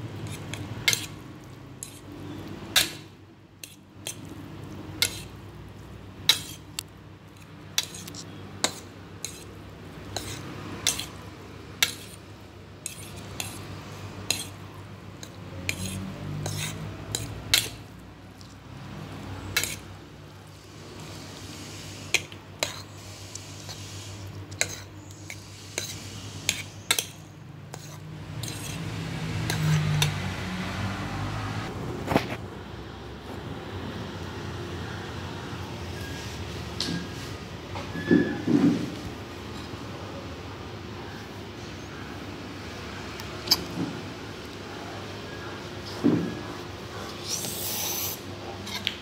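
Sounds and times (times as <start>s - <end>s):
fork scraping ceramic plate: 0.2s - 1.2s, 1.8s - 2.1s, 3.6s - 4.3s, 5.0s - 5.4s, 6.2s - 6.7s, 7.4s - 11.2s, 11.8s - 12.2s, 12.8s - 13.7s, 14.3s - 14.6s, 15.2s - 17.8s, 19.4s - 19.9s, 22.1s - 23.0s, 24.5s - 30.1s.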